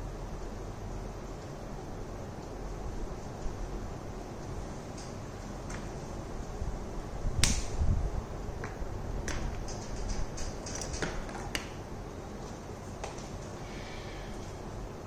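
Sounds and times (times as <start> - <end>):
low room hum: 0.0 - 15.0
sharp click: 7.4 - 7.8.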